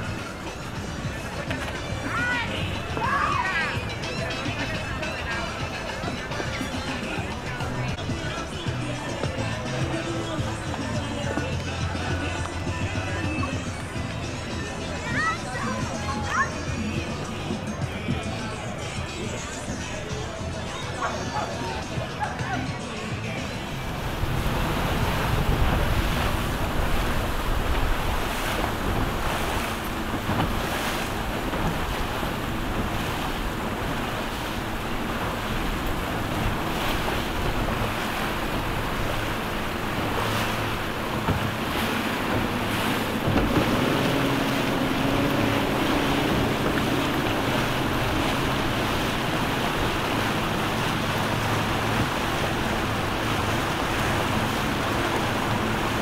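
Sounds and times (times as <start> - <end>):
boat engines idling: 0.0 - 56.0
water noise: 0.0 - 56.0
wind buffeting microphone: 23.7 - 56.0.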